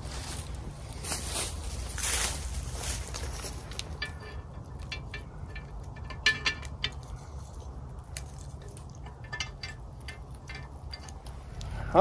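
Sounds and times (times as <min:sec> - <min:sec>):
metal grill grate clicking: 0:03.2 - 0:11.8.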